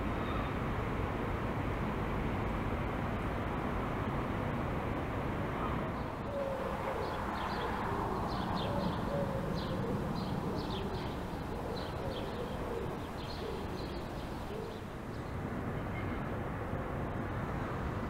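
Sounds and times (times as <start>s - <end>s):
city traffic rumble: 0.0s - 18.0s
small birds chirping: 6.0s - 15.4s
low cooing calls: 6.2s - 15.0s.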